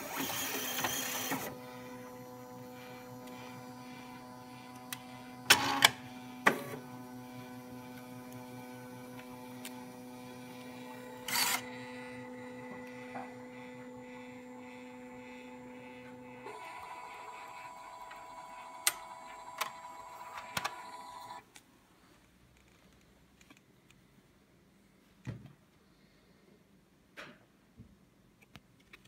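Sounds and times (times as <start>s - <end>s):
card printer motor whine: 0.0s - 21.4s.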